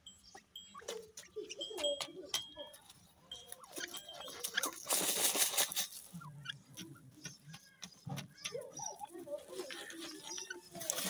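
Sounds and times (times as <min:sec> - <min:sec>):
scratching on dirt: 0:00.9 - 0:11.0
scuffling noise: 0:04.4 - 0:06.2
bird calling softly: 0:06.0 - 0:11.0.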